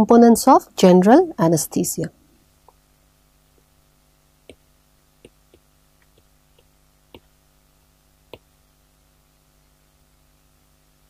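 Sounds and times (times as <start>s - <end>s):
low steady hum: 0.0s - 11.0s
pen tapping on paper: 5.2s - 7.3s.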